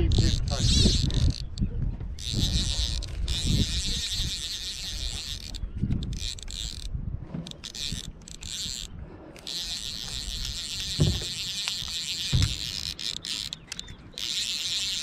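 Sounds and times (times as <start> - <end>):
fishing reel drag buzzing: 0.0 - 1.6, 2.2 - 15.0
wind on microphone: 0.0 - 12.8
low bumps: 10.0 - 12.8.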